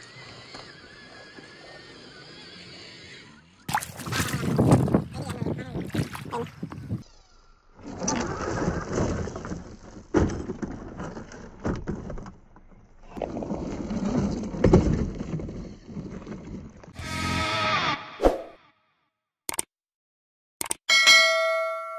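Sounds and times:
gravel and stones crunching: 7.9 - 17.0.

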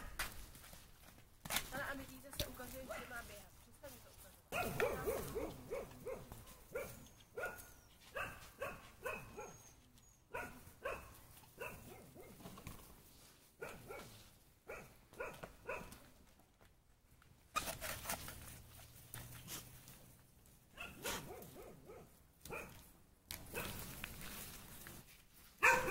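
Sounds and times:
puppies yapping: 25.6 - 25.9.

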